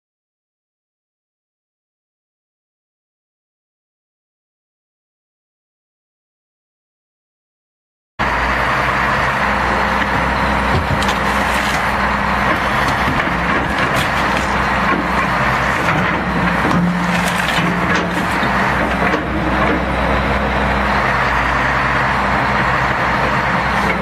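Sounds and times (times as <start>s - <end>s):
engine running: 8.2s - 24.0s
boat cabin cracking and crunching: 10.0s - 19.3s.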